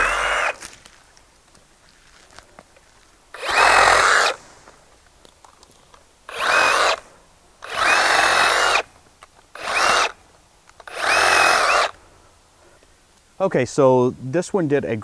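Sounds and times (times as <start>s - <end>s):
reciprocating saw cutting branches: 0.0s - 0.8s, 3.4s - 4.4s, 6.3s - 7.0s, 7.6s - 10.2s, 10.8s - 12.0s.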